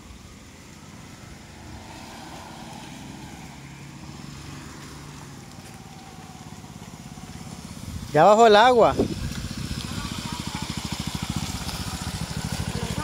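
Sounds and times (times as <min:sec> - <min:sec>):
small motorcycle engine running: 0:05.1 - 0:13.0
wind noise on microphone: 0:07.4 - 0:10.7.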